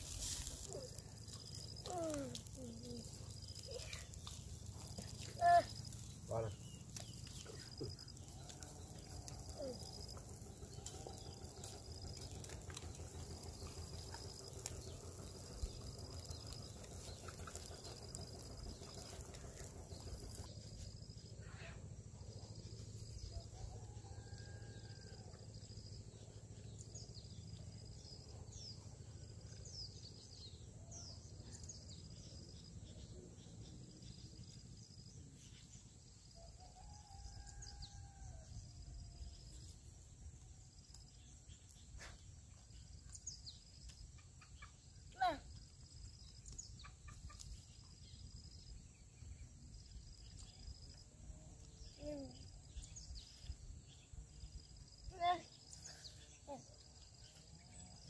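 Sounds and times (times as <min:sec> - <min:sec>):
low steady rumble: 0:00.0 - 0:36.0.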